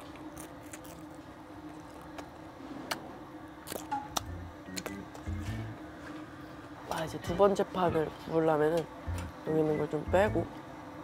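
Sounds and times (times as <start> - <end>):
mouth chewing and smacking: 0.0 - 5.3
low steady hum: 0.0 - 11.0.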